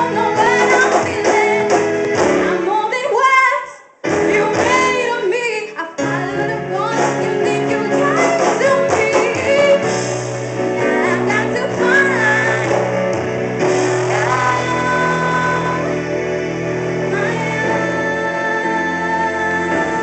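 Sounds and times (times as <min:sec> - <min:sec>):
woman singing into a microphone: 0:00.0 - 0:10.0, 0:10.8 - 0:20.0
electric bass: 0:07.0 - 0:20.0.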